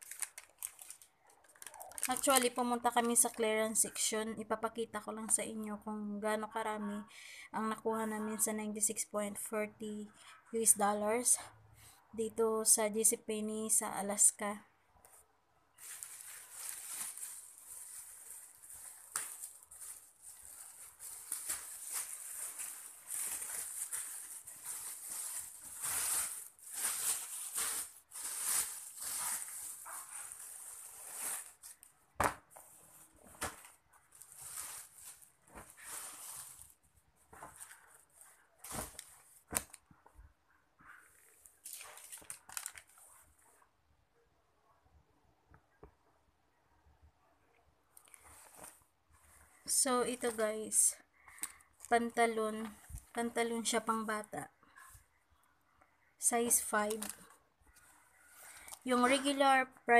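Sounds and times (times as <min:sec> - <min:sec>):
plastic bag crinkling: 0:00.0 - 0:03.8, 0:15.8 - 0:31.9, 0:34.0 - 0:38.0, 0:41.5 - 0:43.0, 0:56.4 - 0:59.5.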